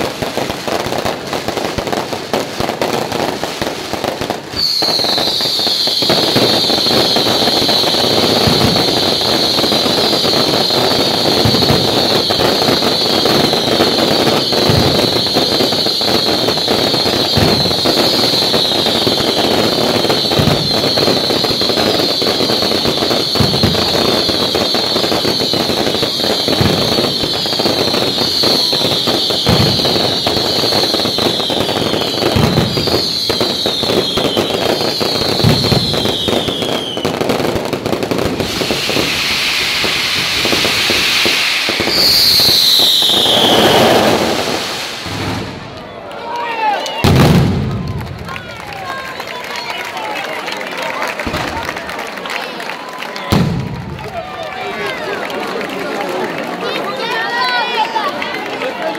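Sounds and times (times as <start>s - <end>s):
fireworks booming: 0.0s - 46.0s, 47.0s - 49.0s, 51.2s - 52.0s, 53.2s - 54.7s
fireworks whistling: 0.0s - 50.0s, 50.6s - 54.9s
fireworks crackling: 0.0s - 58.9s
hissing rush: 38.3s - 45.6s.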